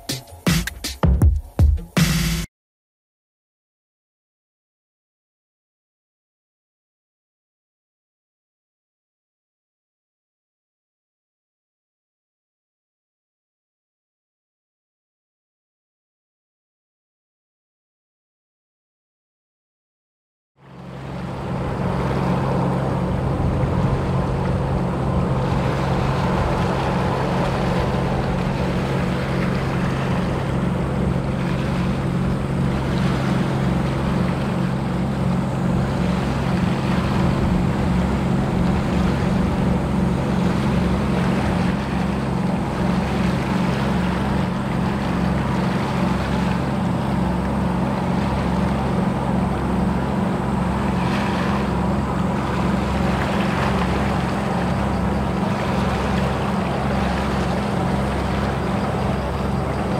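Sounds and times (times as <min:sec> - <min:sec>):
ship machinery drone: 0:20.6 - 0:59.9.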